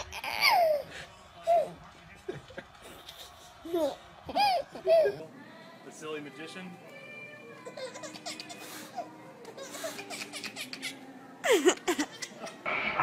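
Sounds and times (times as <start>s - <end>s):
baby laughing: 0.0s - 0.9s, 3.2s - 5.2s, 7.6s - 12.6s.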